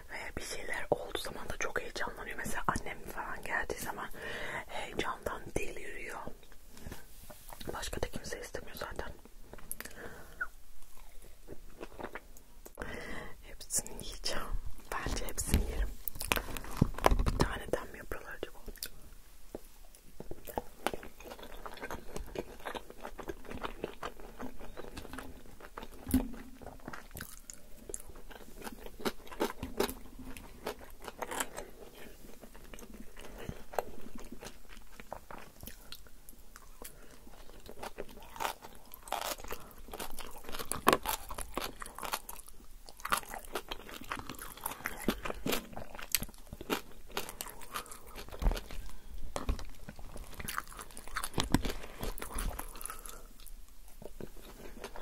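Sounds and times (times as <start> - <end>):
person chewing and biting: 9.6 - 12.5, 18.7 - 55.0.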